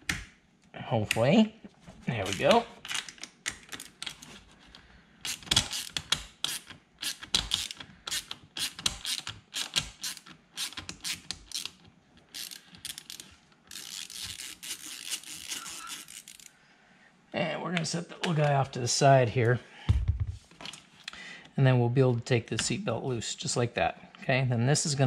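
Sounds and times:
hand ratchet clicking: 5.2 - 16.5.

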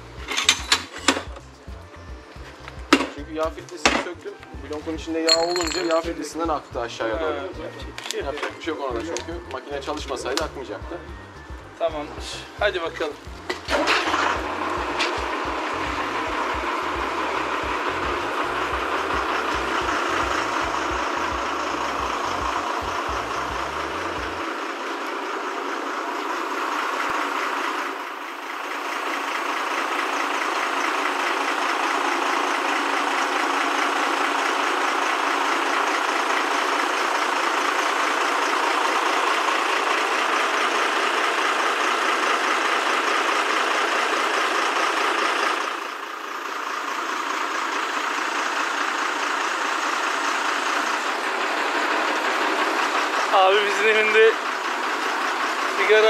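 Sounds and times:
hydraulic crane engine under load: 13.2 - 56.0.

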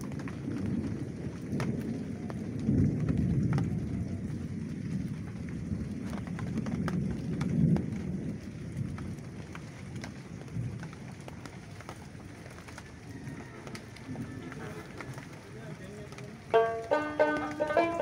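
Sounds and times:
rain on leaves: 0.0 - 18.0
drops tapping: 16.5 - 18.0.

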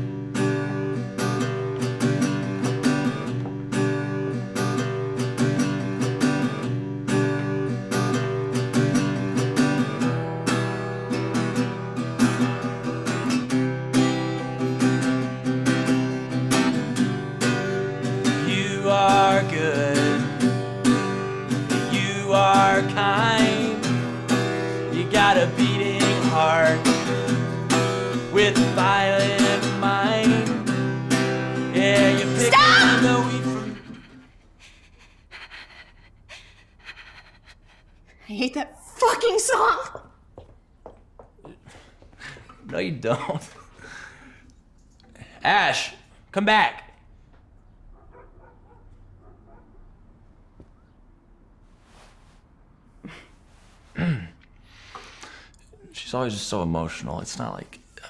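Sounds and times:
acoustic guitar strumming: 0.0 - 34.0
man singing: 18.2 - 27.5, 28.1 - 34.1.

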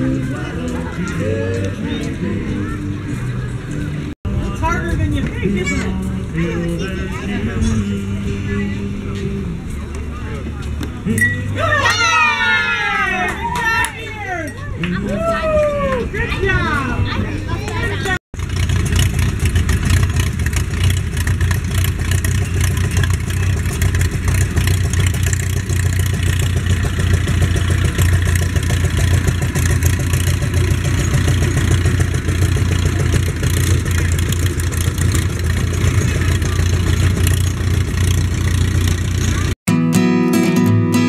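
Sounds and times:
small tractor engine running: 18.4 - 39.6.

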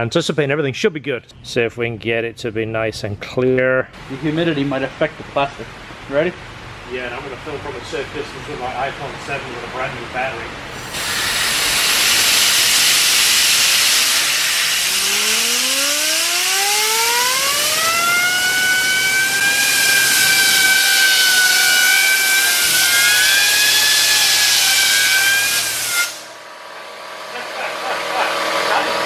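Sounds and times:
compressed air hissing: 10.7 - 18.0, 19.3 - 26.4
spinning wheel whine: 10.7 - 29.0.

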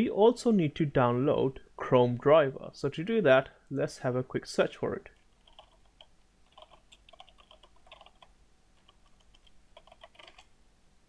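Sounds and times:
typing on computer keyboard: 5.2 - 10.5.

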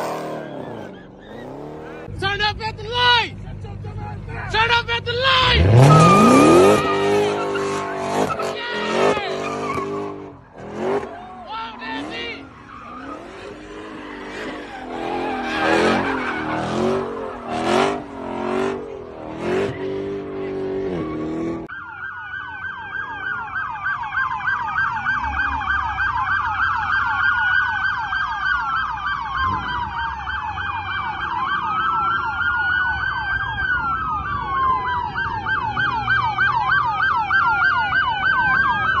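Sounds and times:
police sirens wailing and yelping: 0.0 - 2.2, 4.6 - 39.0.

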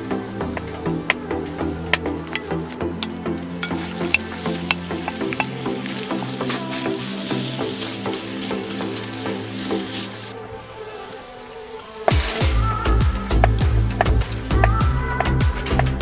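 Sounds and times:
background music: 0.0 - 16.0
wooden spatula scraping wok: 1.9 - 10.4
onions sizzling in hot oil: 3.6 - 10.4.

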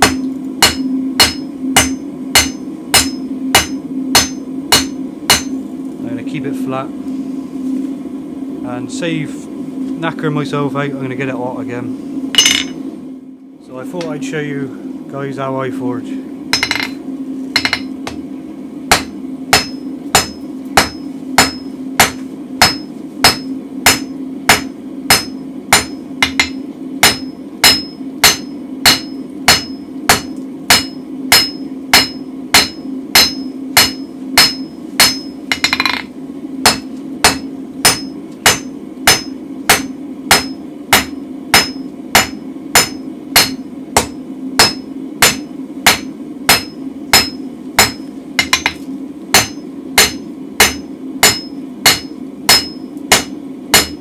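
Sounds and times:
hammer striking steel on anvil: 0.0 - 5.6, 12.4 - 12.8, 16.5 - 17.0, 17.6 - 18.2, 18.9 - 54.0
gas forge humming: 0.0 - 54.0.

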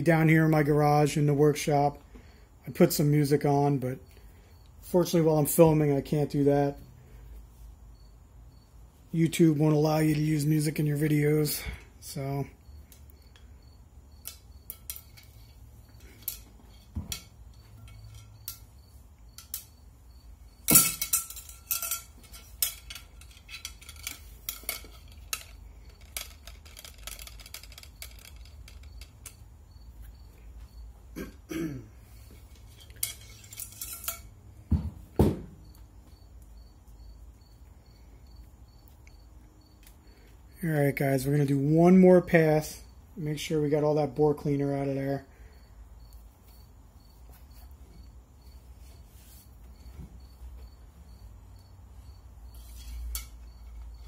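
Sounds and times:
cleaning rod clinking and tapping: 14.2 - 18.7, 19.3 - 19.8, 20.7 - 29.4, 32.6 - 34.4.

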